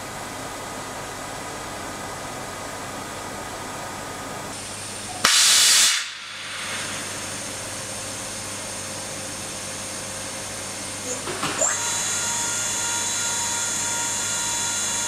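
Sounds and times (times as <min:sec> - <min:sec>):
compressed air hiss: 0:04.6 - 0:08.9
machine humming: 0:06.0 - 0:15.0.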